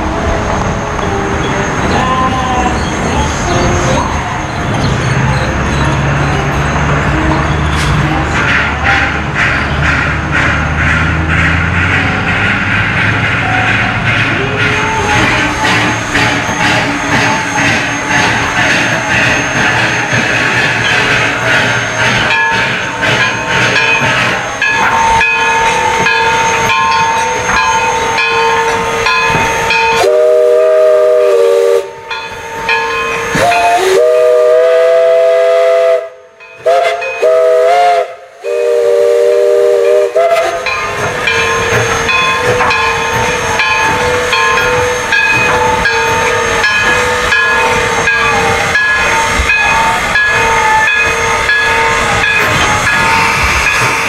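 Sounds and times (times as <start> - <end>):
locomotive running noise: 0.0 - 36.0, 36.6 - 54.0
locomotive hissing steam: 0.0 - 54.0
steam whistle blasts: 25.7 - 32.0, 33.2 - 40.7.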